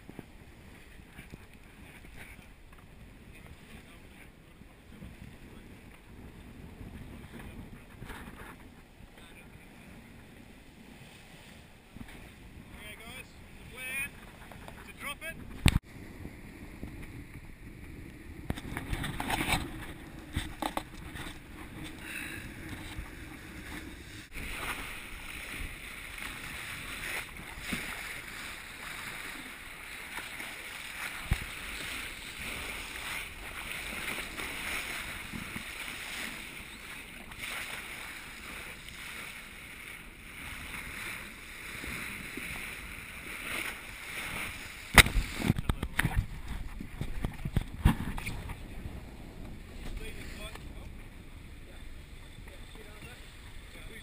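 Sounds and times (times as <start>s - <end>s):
water rushing along a hull: 0.0s - 54.0s.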